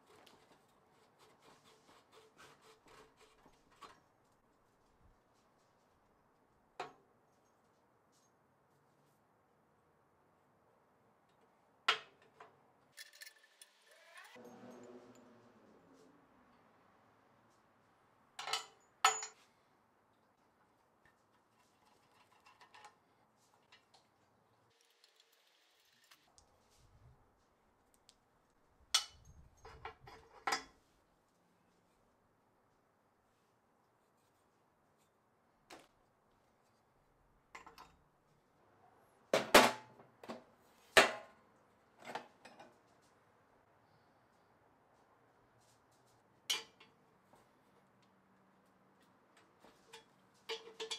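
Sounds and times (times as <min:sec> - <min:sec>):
wrenches clinking: 0:49.8 - 0:50.9.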